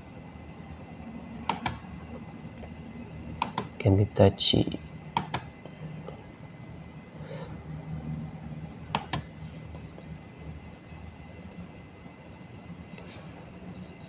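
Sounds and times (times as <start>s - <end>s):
low background hum: 0.0s - 14.0s
computer mouse clicks: 1.5s - 1.8s, 3.4s - 3.7s, 5.2s - 5.5s, 8.9s - 9.3s.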